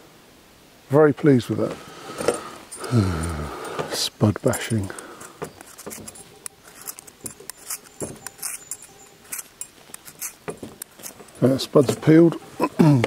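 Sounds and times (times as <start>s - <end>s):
peeler scraping potato skin: 5.2s - 12.1s.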